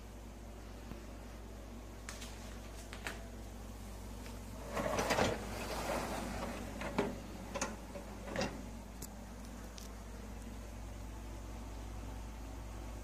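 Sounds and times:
dishwasher basket rattling: 0:04.7 - 0:08.7
wire rack clicks and knocks: 0:06.8 - 0:08.7.

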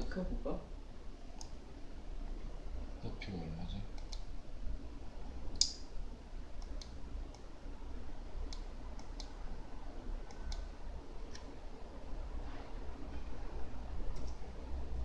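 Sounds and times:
sharp clicks: 0:04.0 - 0:04.3.

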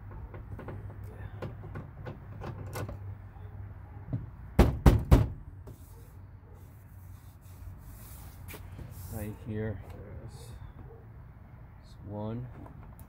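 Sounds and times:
knocks on plastic door panel: 0:04.1 - 0:05.4.

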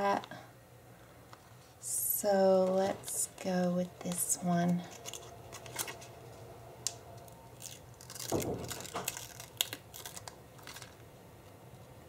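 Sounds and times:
sticker peeled from backing: 0:04.8 - 0:06.2, 0:06.8 - 0:11.0
paper rustling: 0:04.9 - 0:06.2.

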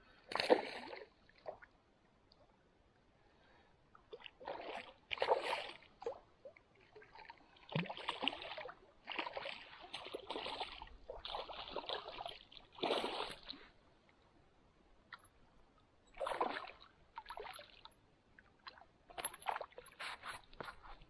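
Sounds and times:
fish splashing in shallow water: 0:00.3 - 0:01.7, 0:04.1 - 0:13.7, 0:16.1 - 0:21.0.

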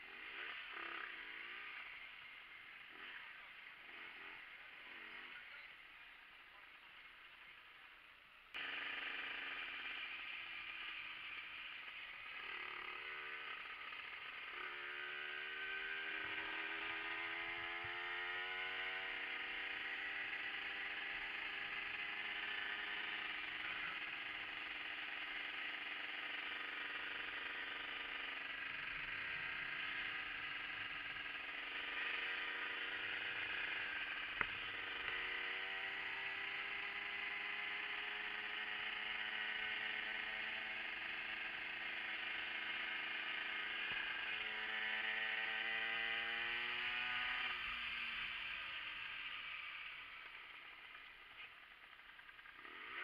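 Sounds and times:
moped engine revving: 0:00.0 - 0:05.7, 0:08.6 - 0:53.0.

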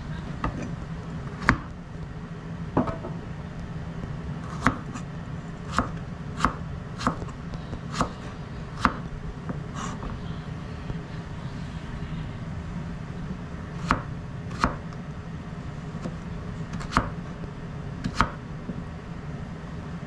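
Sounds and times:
steady low hum: 0:00.0 - 0:20.0
knife knocking on cutting board: 0:02.8 - 0:03.2.

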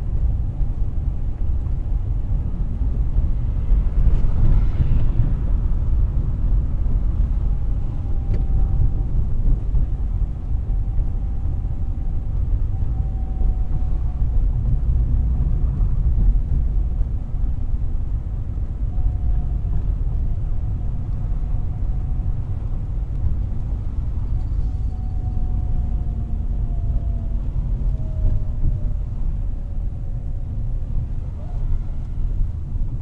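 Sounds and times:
car road and engine rumble: 0:00.0 - 0:33.0
faint sliding whine: 0:23.2 - 0:26.4.

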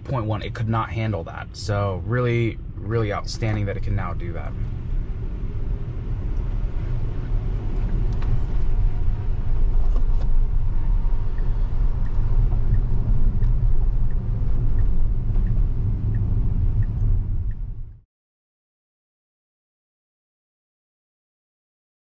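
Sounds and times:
road and tyre noise in car: 0:00.0 - 0:18.0.

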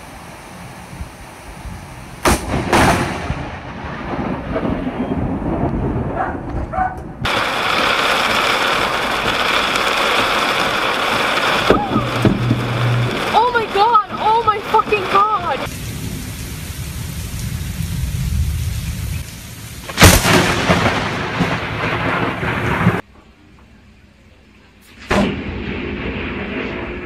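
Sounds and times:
heavy rain hiss: 0:00.0 - 0:03.4, 0:07.3 - 0:23.0
thunder crack and rumble: 0:01.6 - 0:23.1, 0:24.9 - 0:27.0.

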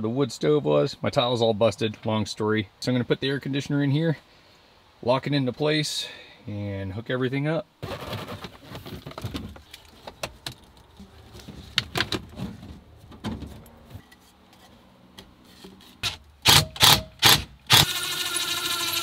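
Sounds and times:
plastic hose clicking and rubbing: 0:07.8 - 0:12.8
cordless drill driving screws: 0:16.0 - 0:19.0
drill motor running: 0:16.5 - 0:19.0.

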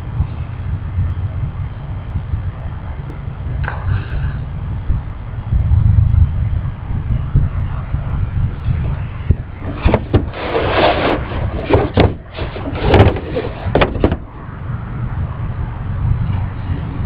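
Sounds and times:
wind rumble on microphone: 0:00.0 - 0:17.0
guitar being handled: 0:09.6 - 0:14.3.

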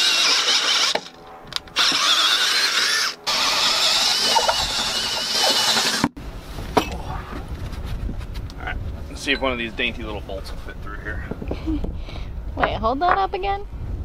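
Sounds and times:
cordless drill boring wood: 0:00.0 - 0:01.1, 0:01.8 - 0:06.1.

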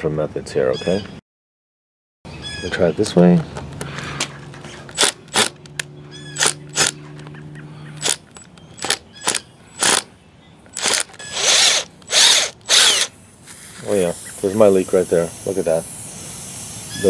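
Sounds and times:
cordless drill bursts: 0:04.9 - 0:05.6, 0:06.4 - 0:07.0, 0:08.0 - 0:10.1, 0:10.7 - 0:13.2.

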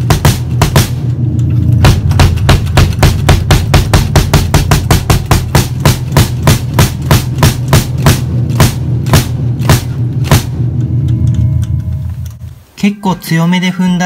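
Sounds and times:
bass drum kicks: 0:00.0 - 0:11.0.

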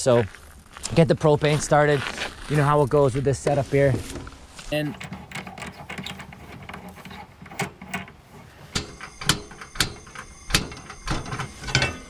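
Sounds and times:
stove igniter clicking: 0:08.8 - 0:12.0.

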